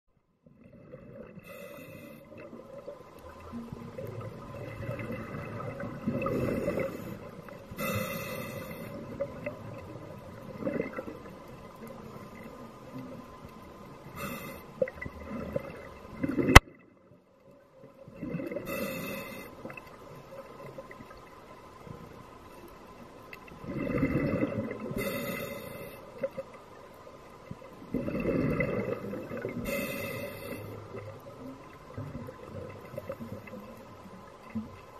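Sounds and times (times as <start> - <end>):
exhaled bubbles gurgling: 0.4 - 21.3, 23.5 - 26.6, 27.4 - 34.9
regulator hiss: 1.5 - 2.4, 6.5 - 9.2, 14.0 - 14.8, 18.7 - 19.7, 25.0 - 26.3, 29.6 - 31.0.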